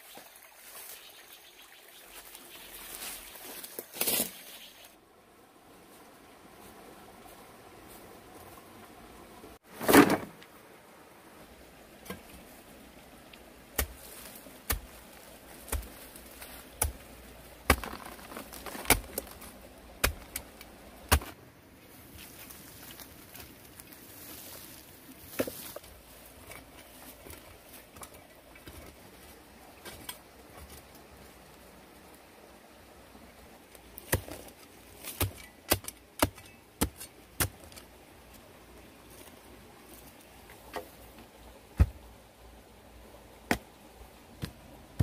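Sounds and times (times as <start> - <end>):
hoe striking dry earth: 13.7 - 21.4, 34.0 - 37.9, 41.8 - 42.0, 43.4 - 43.7.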